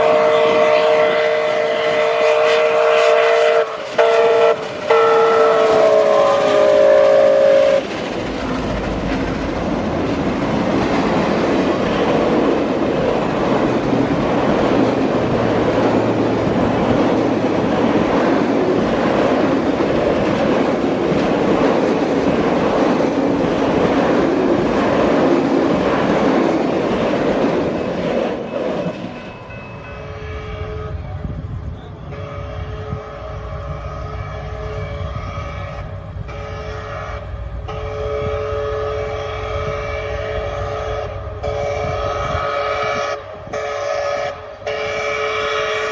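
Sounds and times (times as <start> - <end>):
train wheels rumbling on rail: 0.0 - 45.9
clickety-clack over rail joints: 3.6 - 31.9.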